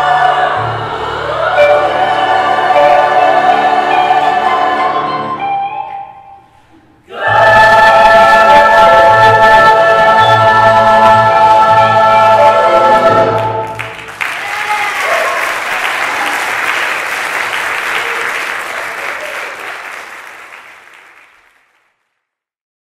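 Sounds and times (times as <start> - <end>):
choir singing chord: 0.0 - 6.4, 7.1 - 13.9
audience applauding: 13.4 - 22.1.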